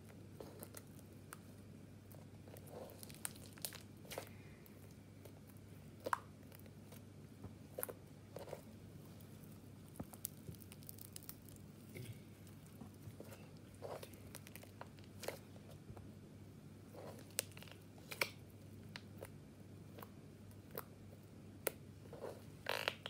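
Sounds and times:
faint low hum: 0.0 - 23.0
slime squishing and popping: 2.6 - 4.3, 9.8 - 13.1.

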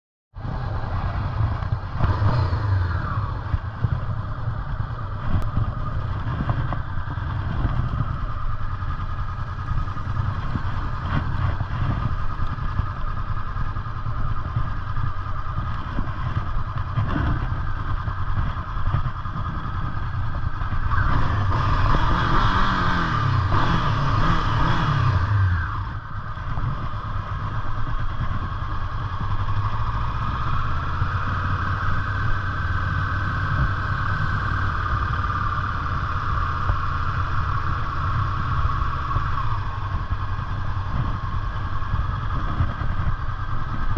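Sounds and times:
motorcycle engine running: 0.4 - 43.9.

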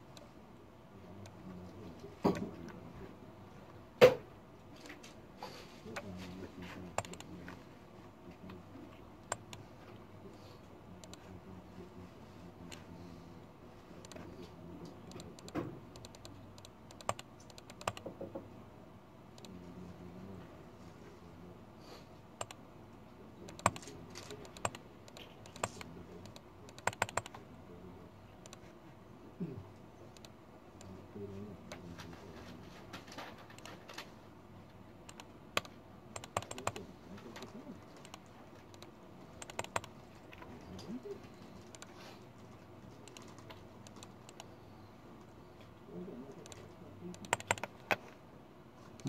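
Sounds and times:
faint office room tone: 0.0 - 49.0
computer mouse and keyboard clicks: 5.9 - 7.6, 11.0 - 11.3, 14.0 - 18.4, 23.5 - 27.4, 28.4 - 28.7, 30.1 - 30.9, 31.7 - 34.2, 35.0 - 44.6, 46.3 - 48.2.

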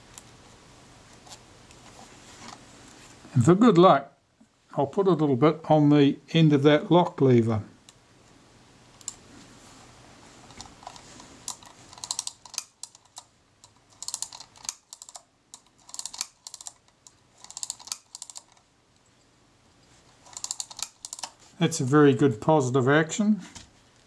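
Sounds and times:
camera film advance ratcheting: 10.9 - 13.2, 14.0 - 16.8, 17.4 - 18.6, 20.2 - 21.4.

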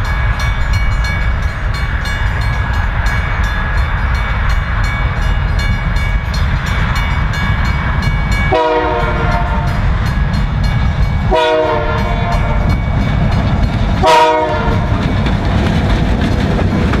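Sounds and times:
diesel locomotive rumble: 0.0 - 17.0
wheels clicking over rail joints: 0.0 - 17.0
locomotive horn blasts: 8.5 - 9.8, 11.3 - 12.8, 14.0 - 15.0.

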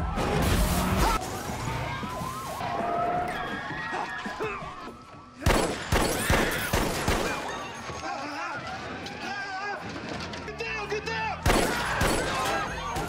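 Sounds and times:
loud sharp bangs: 11.4 - 13.0.

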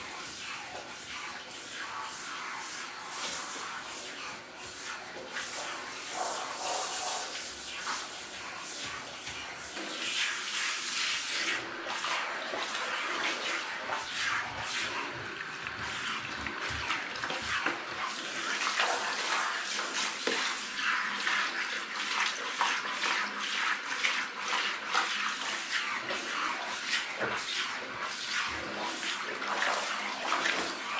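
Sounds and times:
shower head spraying water: 0.0 - 11.6.

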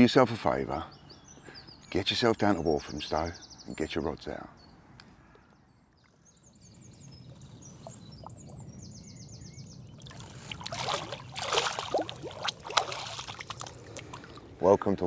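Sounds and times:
small birds singing: 0.0 - 15.0
water splashing loudly: 10.0 - 14.4.

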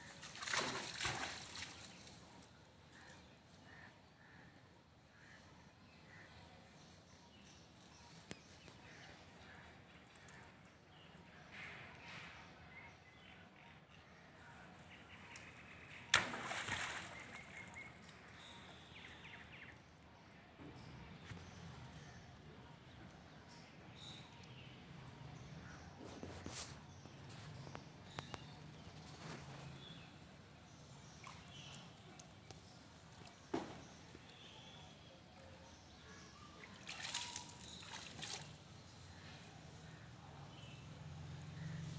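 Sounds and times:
splash in muddy pond: 0.0 - 2.4, 16.0 - 18.0, 36.6 - 38.6.

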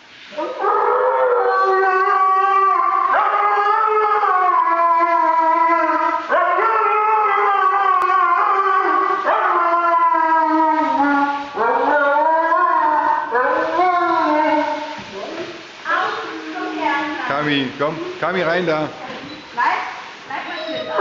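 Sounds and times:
husky howling: 0.4 - 15.4.

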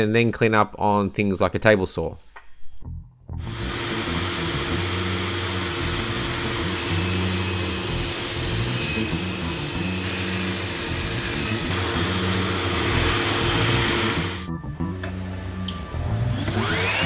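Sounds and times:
circular saw cutting: 3.4 - 14.5, 16.2 - 17.0.

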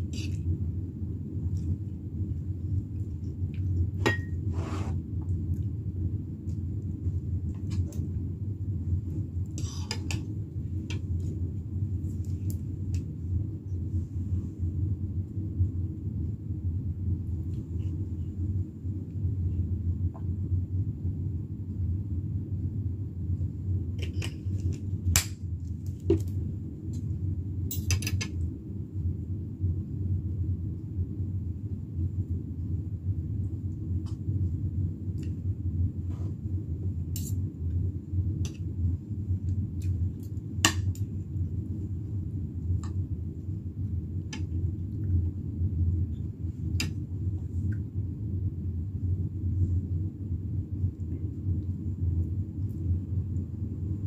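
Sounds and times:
steady low hum: 0.0 - 54.0.

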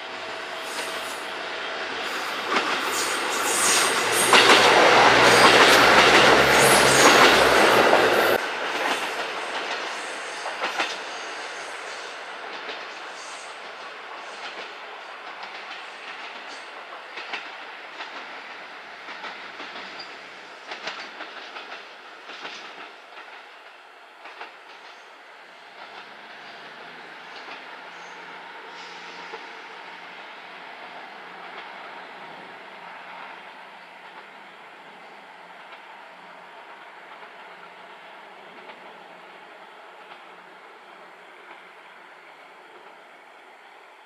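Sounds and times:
diesel train passing: 0.0 - 44.0
train wheels clacking over rail joints: 2.0 - 11.2, 13.7 - 25.1, 25.8 - 26.3.

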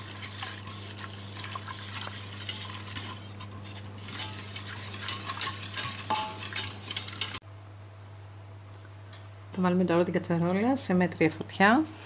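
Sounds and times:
whisk scraping metal pot: 0.0 - 7.4.

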